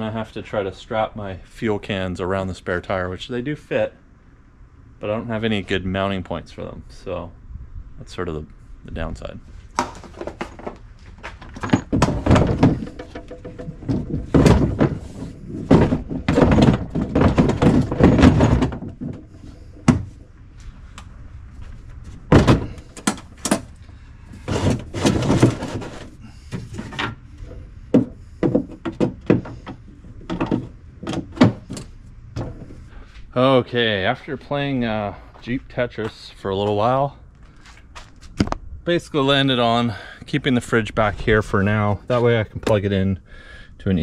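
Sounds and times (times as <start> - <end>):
cases knocking and sliding: 9.8 - 20.3, 22.0 - 32.8.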